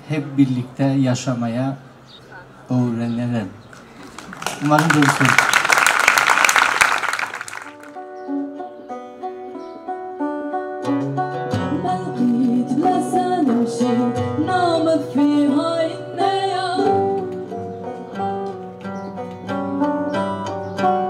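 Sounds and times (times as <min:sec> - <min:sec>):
plucked saz melody: 0:07.8 - 0:21.0
person singing: 0:11.5 - 0:17.5.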